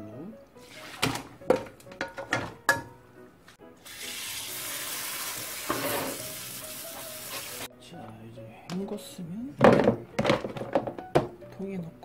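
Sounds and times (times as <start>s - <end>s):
metal wok clanking against sink: 1.0s - 3.0s, 5.6s - 6.2s
faucet sprayer hissing water: 3.8s - 7.7s.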